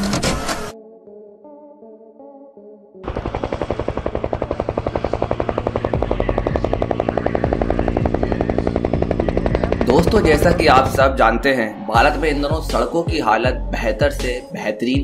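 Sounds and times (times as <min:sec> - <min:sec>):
helicopter rotor chopping: 0:03.0 - 0:13.4.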